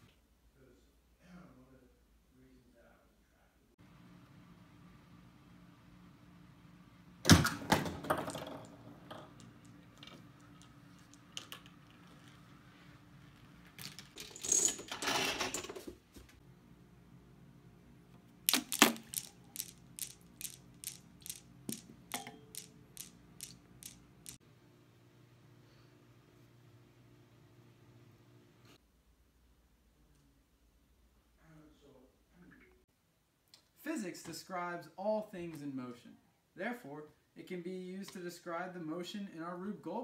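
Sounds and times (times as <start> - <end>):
small parts clattering: 7.7 - 12.6, 13.3 - 16.0, 18.5 - 24.4
steel balls clacking: 18.5 - 24.4.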